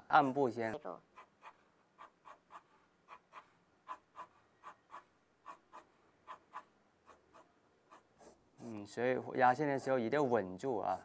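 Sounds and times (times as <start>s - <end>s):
pencil scratching on paper: 9.4s - 11.0s.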